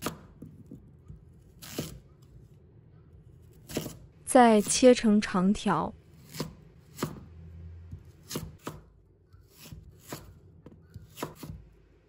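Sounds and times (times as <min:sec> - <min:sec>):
knife chopping on wooden board: 0:00.0 - 0:02.0, 0:03.6 - 0:04.0, 0:06.2 - 0:07.3, 0:07.9 - 0:08.9, 0:09.5 - 0:11.7.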